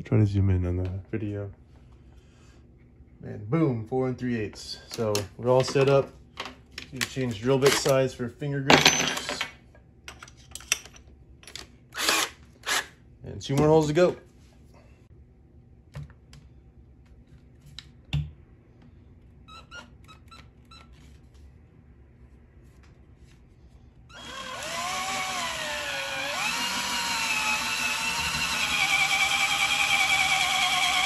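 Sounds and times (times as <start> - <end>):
hand drill whining: 24.1 - 31.0.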